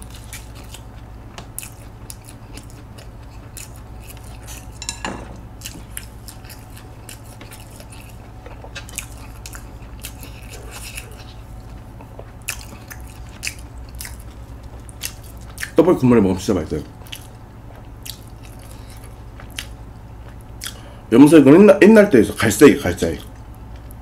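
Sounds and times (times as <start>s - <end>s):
close chewing and biting: 0.0s - 4.8s, 5.5s - 20.9s
steady low hum: 0.0s - 24.0s.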